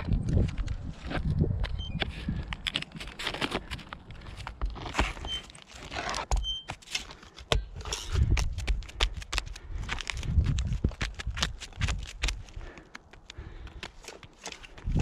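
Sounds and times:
caulking gun clicks and scrapes: 0.0s - 15.0s
hands handling roof shingles: 2.0s - 15.0s.

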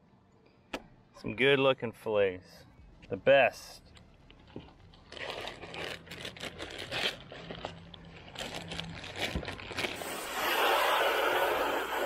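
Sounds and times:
crinkling and rustling: 3.9s - 10.0s
steady hiss: 10.0s - 12.0s.

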